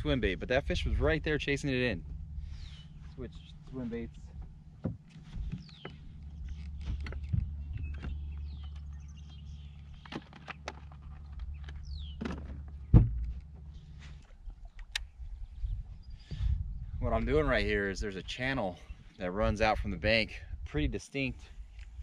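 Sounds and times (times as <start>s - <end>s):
steady low hum: 0.0s - 22.0s
tackle clicks and rattles: 4.4s - 15.1s
loud thump: 12.2s - 13.4s.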